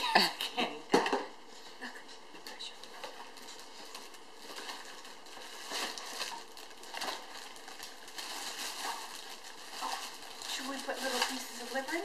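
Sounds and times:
plastic wrap crinkling: 0:02.4 - 0:12.0.

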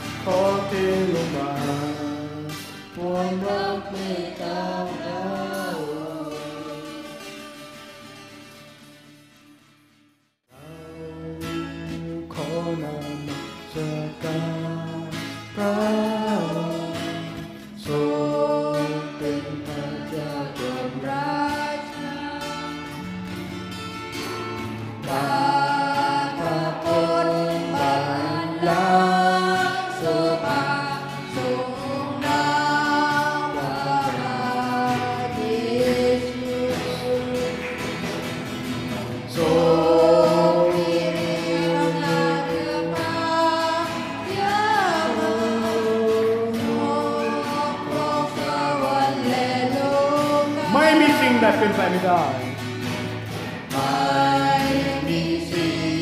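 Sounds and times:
group singing worship song: 0:00.0 - 0:08.8, 0:10.6 - 0:56.0
instrumental accompaniment: 0:11.5 - 0:56.0.

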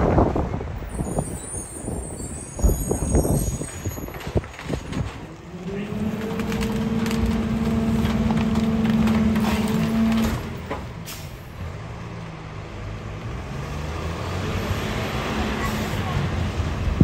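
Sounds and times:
truck engine and hydraulics hum: 0:00.0 - 0:17.0
truck idling: 0:05.2 - 0:12.8.

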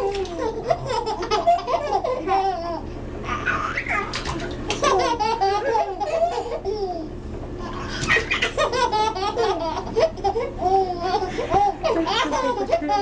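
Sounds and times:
babies laughing: 0:00.0 - 0:13.0.

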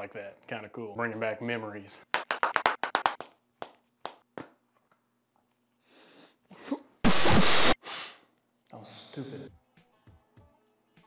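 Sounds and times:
man sniffing: 0:05.9 - 0:06.4, 0:07.1 - 0:08.3
harsh sneeze-like burst: 0:07.0 - 0:08.3.

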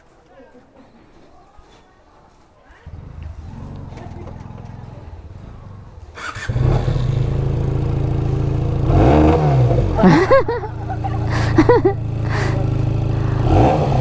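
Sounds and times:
motorcycle engine revving: 0:02.8 - 0:14.0.

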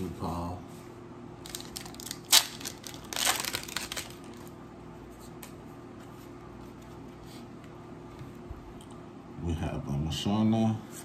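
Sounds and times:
faint steady hum: 0:00.0 - 0:11.0
foil wrapper crinkling and tearing: 0:01.4 - 0:04.5.

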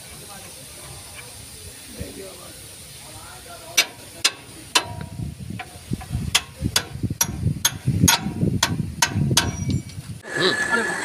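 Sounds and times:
low handling rumble: 0:00.0 - 0:10.2
metal clicks and clinks: 0:03.8 - 0:10.0.

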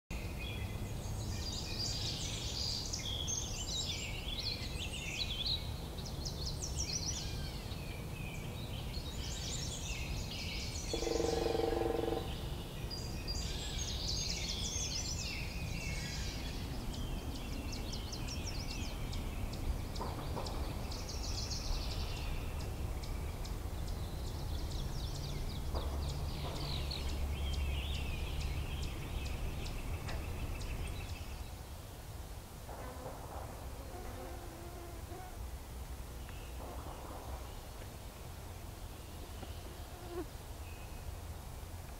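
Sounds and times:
songbirds singing: 0:00.1 - 0:31.7, 0:36.1 - 0:41.2
bullfrog deep call: 0:10.9 - 0:12.4.

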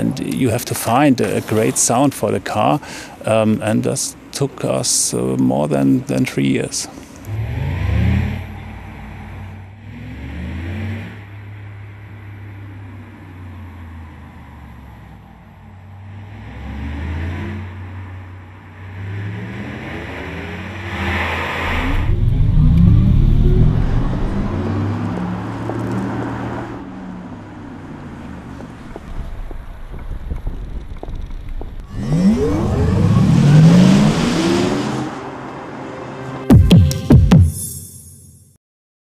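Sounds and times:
synthesized electric car humming: 0:07.2 - 0:36.5.

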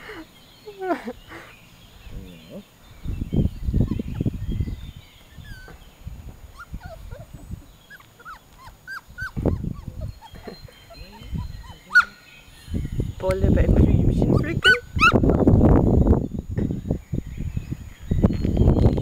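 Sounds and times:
puppies whimpering: 0:03.6 - 0:12.5, 0:14.1 - 0:15.5.

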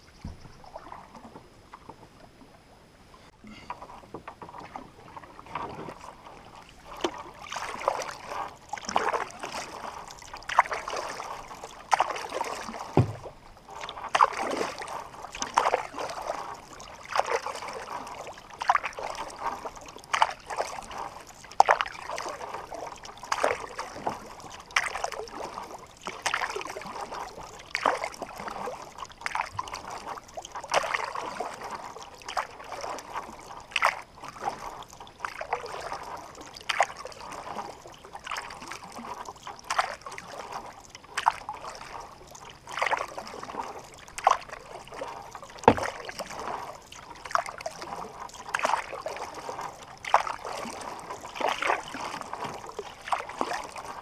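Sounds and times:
paddle splashing in water: 0:00.0 - 0:54.0
low knock: 0:12.9 - 0:13.3.

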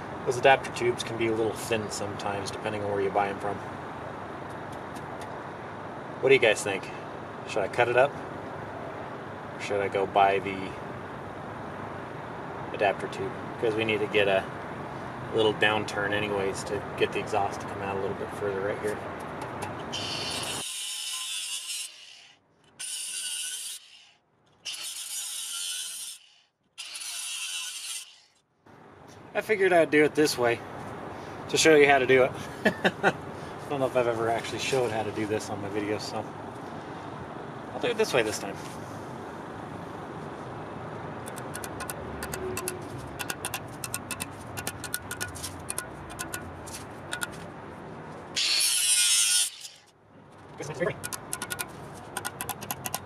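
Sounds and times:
angle grinder cutting metal pipe: 0:19.9 - 0:24.0, 0:24.6 - 0:28.3, 0:41.3 - 0:46.4, 0:48.4 - 0:49.9
quick metallic clicks and taps: 0:41.2 - 0:47.4, 0:50.9 - 0:53.0.

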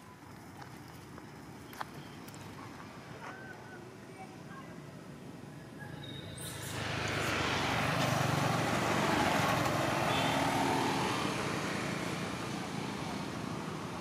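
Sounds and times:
vehicle passing on road: 0:05.9 - 0:14.0.

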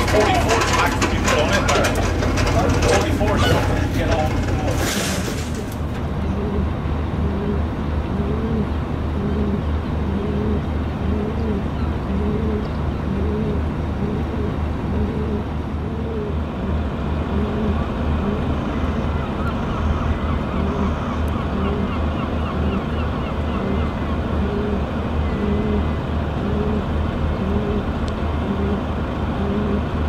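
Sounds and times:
large engine droning: 0:00.0 - 0:30.0.

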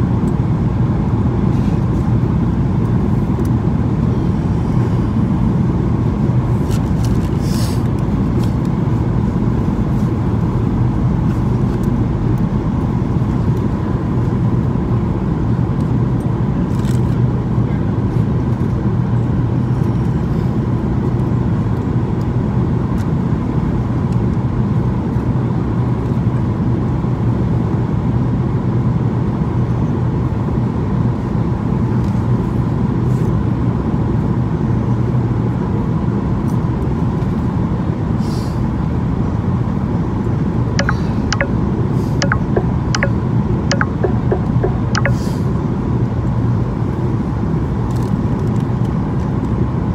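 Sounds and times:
airplane cabin airflow and engines: 0:00.0 - 0:49.9
constant low hum: 0:00.0 - 0:49.9
short sharp clicks: 0:42.2 - 0:45.3.

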